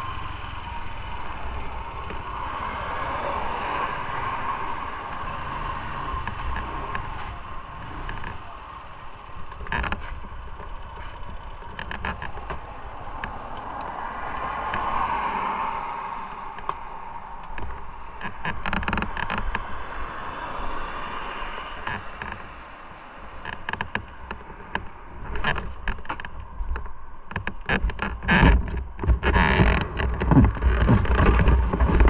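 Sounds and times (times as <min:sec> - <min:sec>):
wind buffeting microphone: 0:23.3 - 0:32.0.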